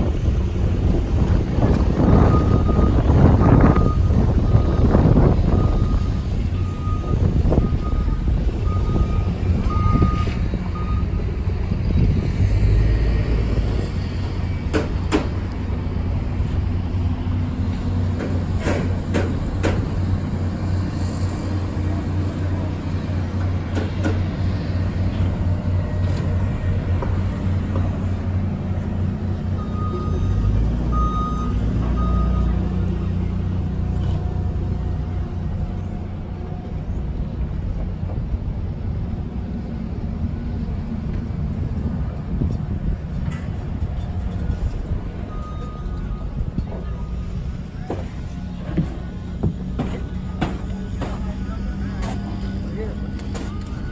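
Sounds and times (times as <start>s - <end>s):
low engine rumble: 0.0s - 53.9s
reversing beeper: 2.0s - 11.2s, 29.5s - 32.8s, 45.2s - 48.3s.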